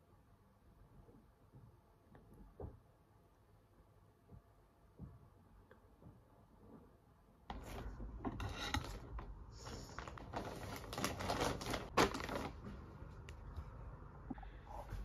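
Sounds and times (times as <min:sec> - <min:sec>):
plastic bag crinkling: 0:09.6 - 0:12.8.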